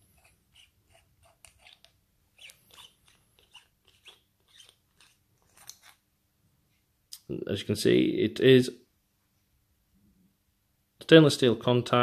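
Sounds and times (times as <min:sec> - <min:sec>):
metal threads clicking and scraping: 0:00.0 - 0:06.0.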